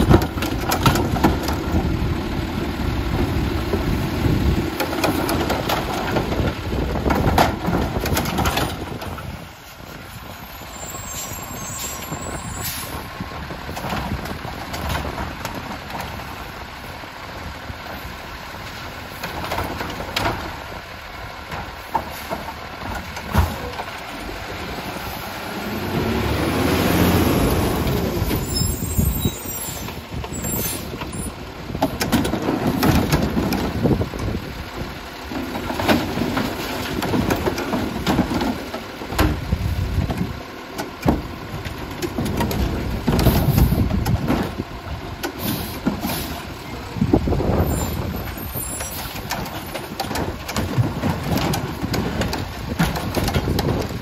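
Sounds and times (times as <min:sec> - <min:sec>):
plastic carts knocking and banging: 0:00.0 - 0:02.0, 0:03.7 - 0:09.5, 0:13.5 - 0:16.5, 0:19.1 - 0:24.4, 0:27.8 - 0:34.5, 0:35.2 - 0:54.0
garbage truck engine surging: 0:00.0 - 0:54.0.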